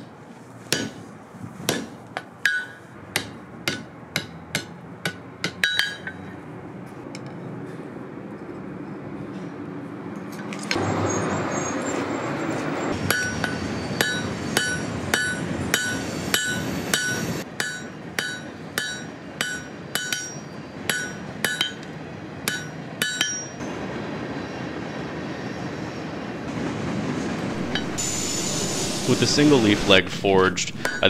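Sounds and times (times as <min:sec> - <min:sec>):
hammer striking iron on anvil: 0:00.7 - 0:01.0, 0:01.7 - 0:06.3, 0:13.0 - 0:23.6, 0:27.6 - 0:28.4, 0:30.7 - 0:31.0
steady rushing noise: 0:25.8 - 0:31.0.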